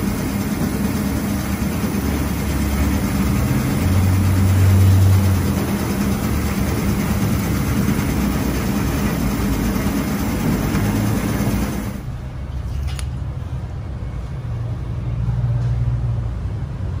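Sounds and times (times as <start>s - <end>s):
low motor hum: 0.0s - 12.0s
meat slicer whirring: 0.0s - 12.0s.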